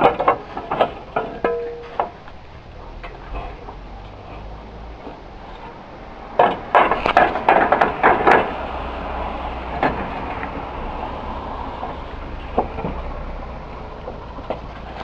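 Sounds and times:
hard knocks and clatter: 0.0 - 2.3, 6.4 - 8.6, 9.7 - 10.6.

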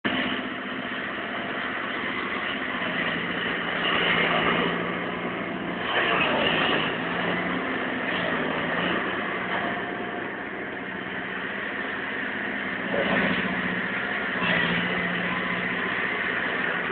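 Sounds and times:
excavator diesel engine running: 0.0 - 16.9.

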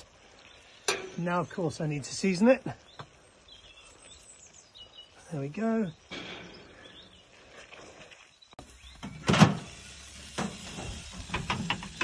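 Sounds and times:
metal oven door clanking: 9.2 - 9.7.

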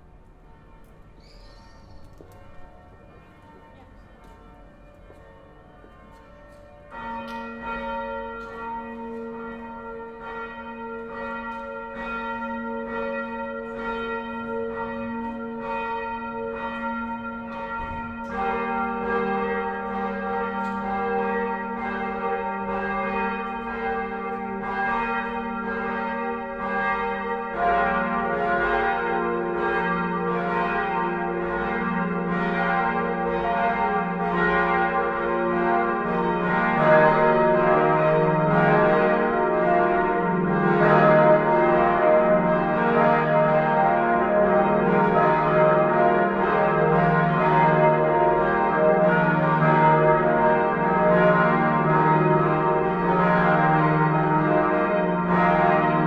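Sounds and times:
church bells ringing: 0.0 - 56.0.

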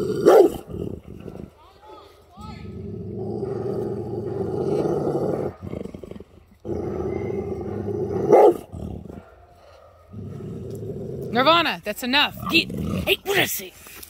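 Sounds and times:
dog growling: 0.0 - 1.6, 2.6 - 9.4, 10.0 - 11.6, 12.3 - 13.2.

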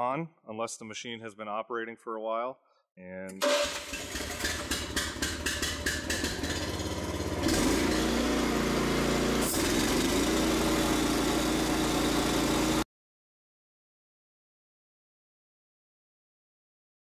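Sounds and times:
electric starter cranking: 3.4 - 12.8
gasoline engine running: 3.4 - 12.8.

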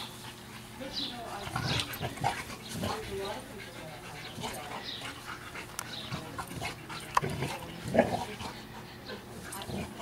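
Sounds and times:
dogs breathing and scuffling: 0.0 - 10.0.

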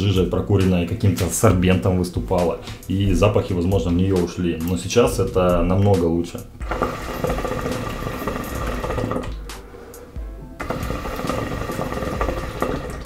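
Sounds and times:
water bubbling in hookah: 6.6 - 9.8, 10.5 - 13.0.

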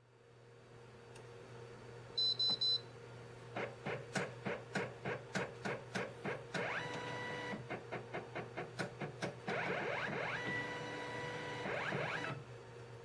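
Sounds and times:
printer feed motor jerking: 3.6 - 12.4
printer beeping: 6.6 - 7.9, 9.4 - 12.4.

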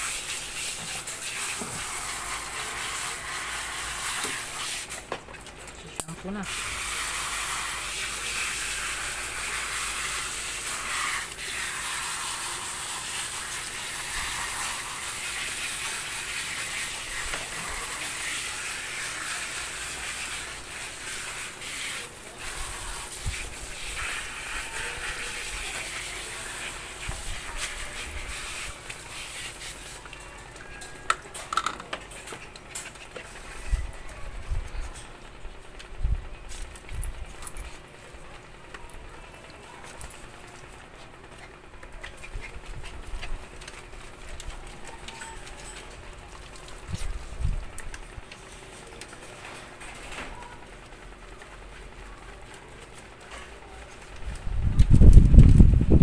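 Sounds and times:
hose nozzle spraying water: 0.0 - 5.1, 6.4 - 30.2.

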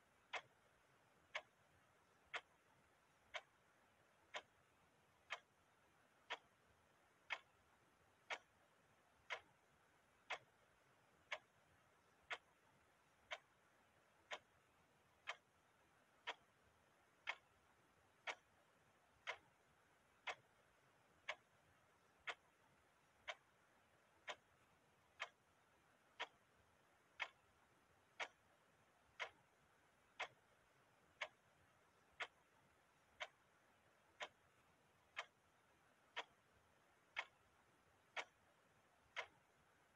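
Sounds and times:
clock ticking: 0.0 - 39.9.

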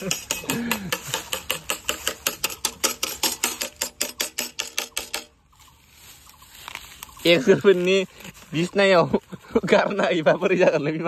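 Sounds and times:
blade tapping metal pot: 0.0 - 5.4.

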